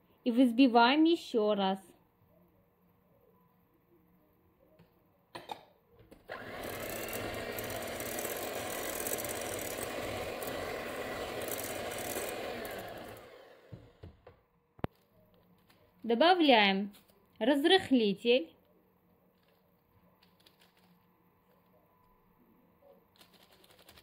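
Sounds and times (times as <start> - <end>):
electric hand mixer whisking: 6.3 - 14.1
knocks: 13.7 - 14.5.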